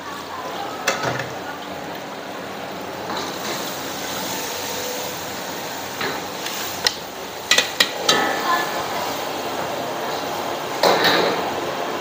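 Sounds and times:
metal utensil clanking on pot: 6.8s - 8.4s.

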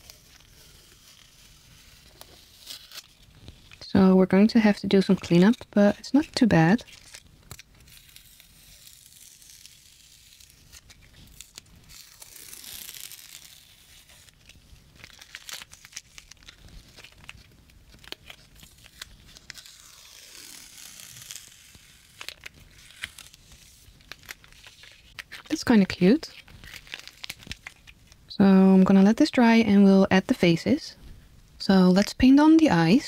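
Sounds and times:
tape peeling off paper: 0.0s - 3.8s, 6.8s - 25.6s, 26.3s - 28.2s
paper rustling: 6.8s - 25.6s, 26.3s - 28.2s.

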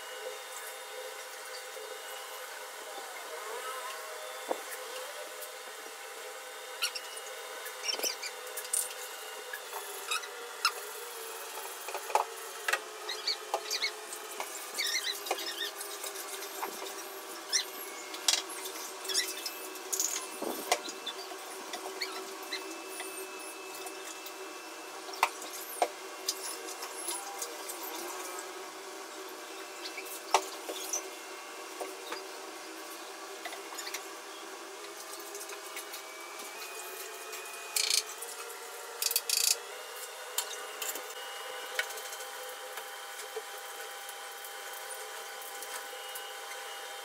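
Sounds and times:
plastic squeaking on wet glass: 6.8s - 8.4s, 13.1s - 13.9s, 14.8s - 15.9s, 22.0s - 22.7s.

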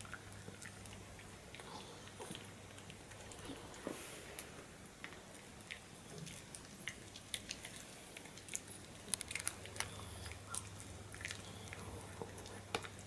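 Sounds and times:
dog chewing a treat: 5.0s - 13.0s.

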